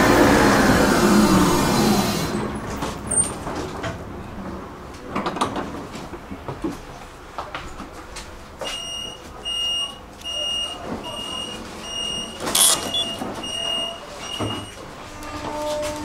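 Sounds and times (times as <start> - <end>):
door warning beeps: 8.6 - 14.8.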